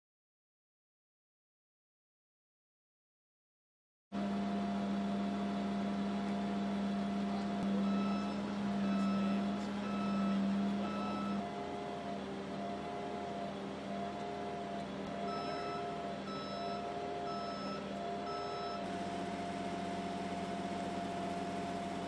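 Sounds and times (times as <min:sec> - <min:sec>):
machine hum: 0:04.2 - 0:22.0
electronic warning alarm beeping: 0:07.4 - 0:22.0.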